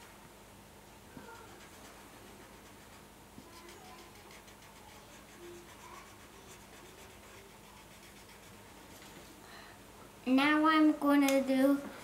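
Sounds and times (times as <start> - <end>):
marker scribbling on paper: 1.2 - 9.0.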